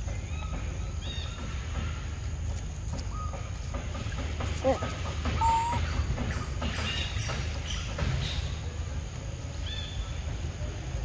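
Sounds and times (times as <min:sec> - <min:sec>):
bird chirps: 0:04.7 - 0:08.6.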